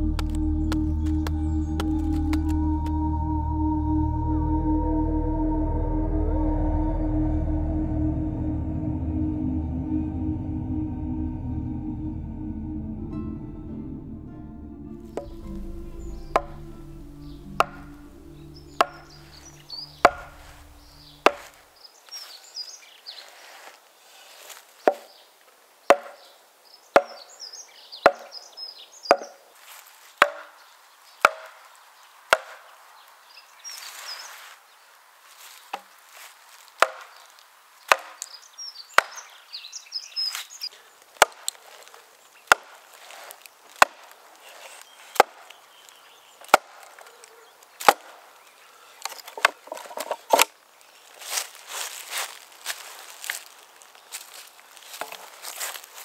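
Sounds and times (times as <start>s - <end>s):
axe chopping a log: 21.3s - 21.5s, 25.9s - 26.2s, 28.1s - 28.3s, 30.2s - 30.5s, 31.2s - 31.6s, 32.4s - 32.6s, 36.8s - 37.1s, 37.9s - 38.2s, 39.0s - 39.2s, 41.2s - 41.6s, 42.5s - 42.8s, 43.8s - 44.1s, 45.2s - 45.4s, 46.5s - 46.9s, 47.8s - 48.1s.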